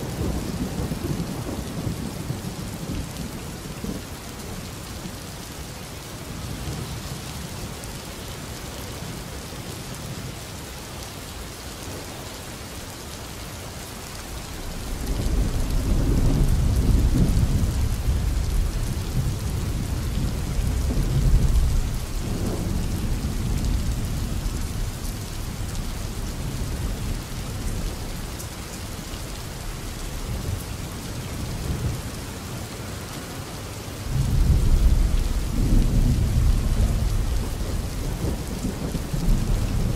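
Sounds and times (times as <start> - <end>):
steady rain: 0.0 - 39.9
thunder rumbling: 14.6 - 28.3, 34.1 - 39.9.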